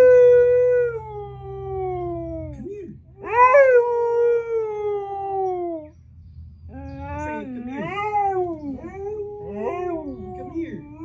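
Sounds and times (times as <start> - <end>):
dog howling: 3.2 - 5.9, 6.7 - 11.0.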